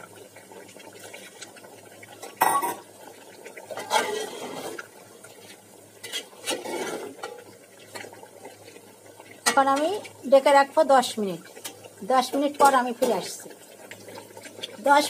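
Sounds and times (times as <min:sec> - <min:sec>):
metal spoon scraping in pot: 0:03.8 - 0:04.8, 0:06.0 - 0:07.4.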